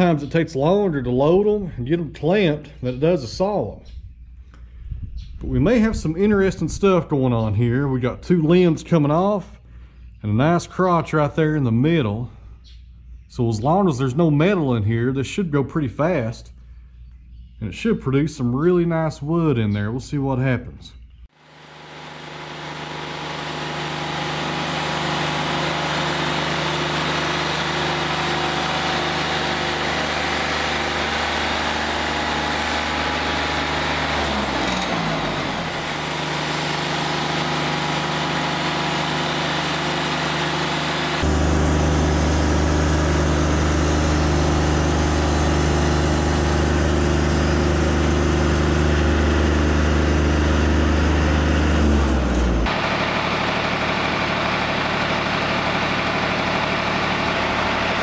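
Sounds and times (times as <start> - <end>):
bandsaw mill sawing log: 21.4 - 58.0.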